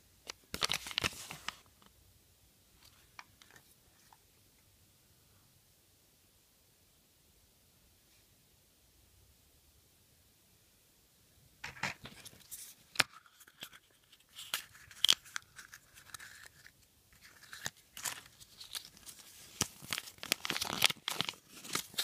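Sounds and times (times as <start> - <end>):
paper leaflet crinkling: 0.5 - 1.7, 11.7 - 22.0.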